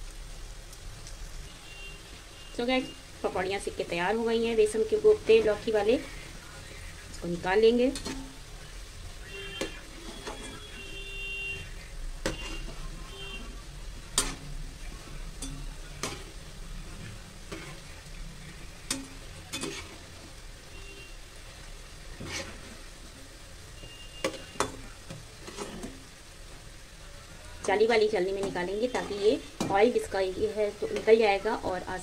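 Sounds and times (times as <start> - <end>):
oil sizzling frying hiss: 0.0 - 32.0
metal utensils clinking on pan: 7.8 - 8.3, 14.1 - 14.5, 15.4 - 16.3, 18.9 - 20.0, 24.2 - 26.0, 28.4 - 30.0.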